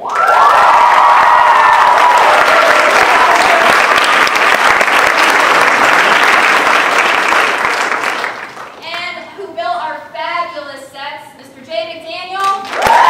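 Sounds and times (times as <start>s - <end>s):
cheers: 0.0s - 6.4s, 12.6s - 13.0s
audience applauding: 0.0s - 8.9s, 12.6s - 13.0s.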